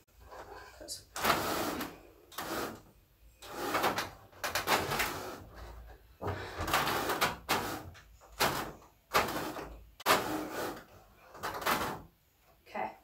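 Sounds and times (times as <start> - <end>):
bed frame scraping across floor: 9.1 - 11.7.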